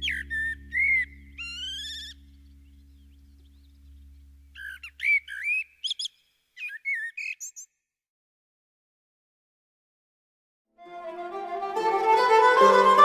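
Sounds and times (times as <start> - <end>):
birdlike whistled chirps: 0.0 - 3.8, 4.5 - 7.8
low steady hum: 0.0 - 5.3.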